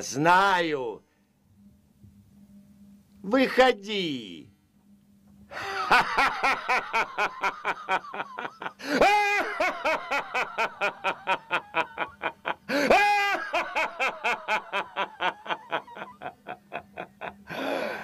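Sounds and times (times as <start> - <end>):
man laughing theatrically: 5.5 - 18.0.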